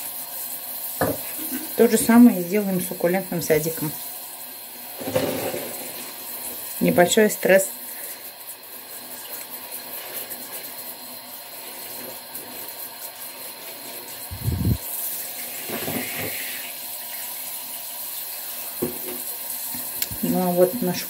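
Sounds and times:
shower water spraying on plants: 0:00.0 - 0:04.6, 0:05.5 - 0:21.0.

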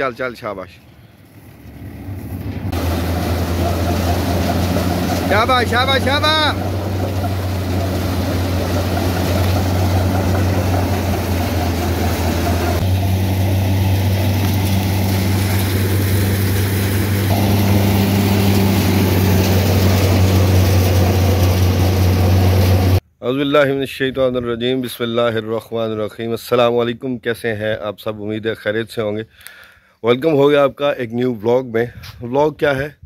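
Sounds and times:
engine humming: 0:00.8 - 0:23.0.

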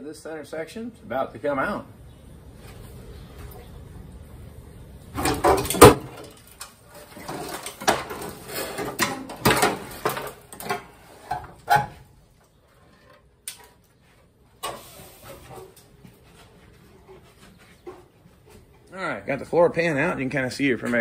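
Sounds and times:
sheet metal scraping and clanking: 0:05.2 - 0:12.1.

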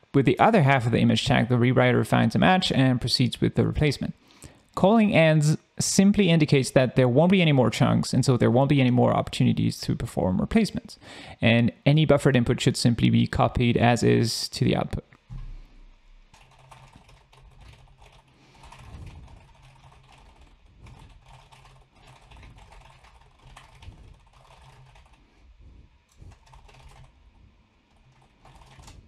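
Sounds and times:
typing on a computer keyboard: 0:16.3 - 0:25.2, 0:26.1 - 0:27.2, 0:27.9 - 0:29.0.

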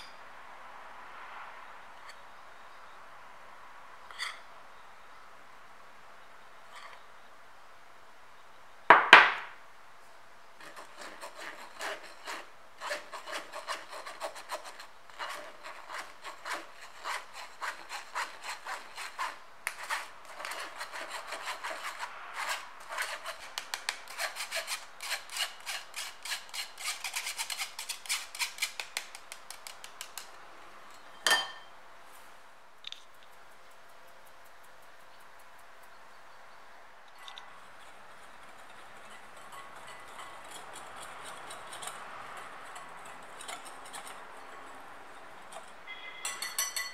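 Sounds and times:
sharp knock: 0:08.9 - 0:09.5.

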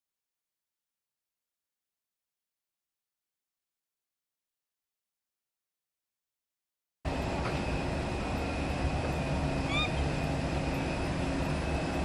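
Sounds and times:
aircraft and ground equipment rumble: 0:07.1 - 0:12.0
faint high whine: 0:07.1 - 0:12.0.

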